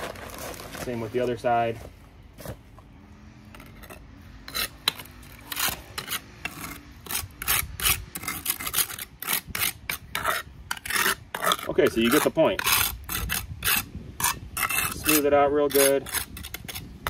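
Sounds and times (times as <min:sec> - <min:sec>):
metal shovel scraping brick: 0:03.5 - 0:17.0.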